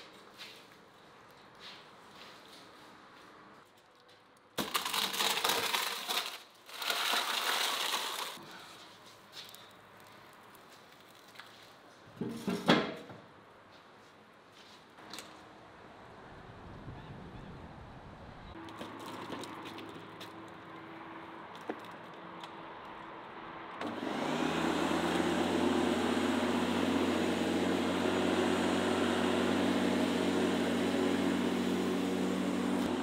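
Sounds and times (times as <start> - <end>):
electric lawn mower humming: 23.8 - 33.0.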